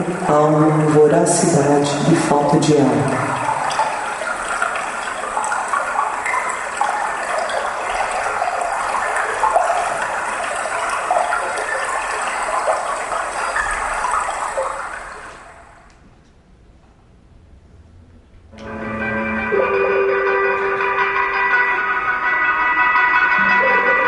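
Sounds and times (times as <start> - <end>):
rushing water: 0.0 - 15.9.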